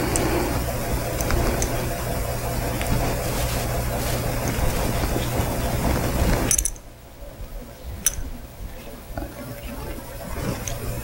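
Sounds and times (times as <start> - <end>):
tape peeling off roll: 0.0 - 6.9.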